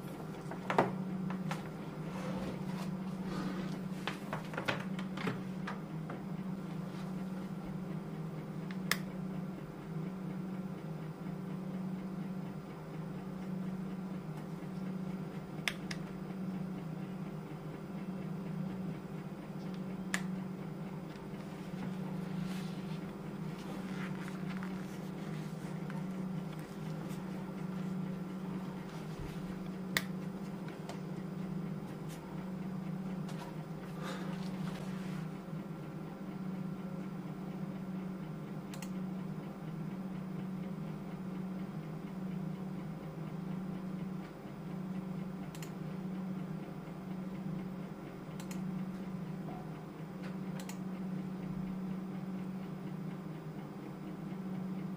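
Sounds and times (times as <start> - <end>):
low hum: 0.0 - 40.1.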